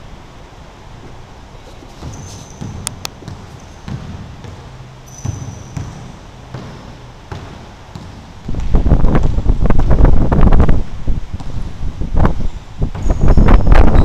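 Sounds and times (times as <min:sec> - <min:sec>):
sneakers squeaking on wood: 0:01.1 - 0:08.8, 0:12.5 - 0:14.0
basketball bouncing on hardwood: 0:01.9 - 0:10.1, 0:11.4 - 0:11.7, 0:12.8 - 0:13.8.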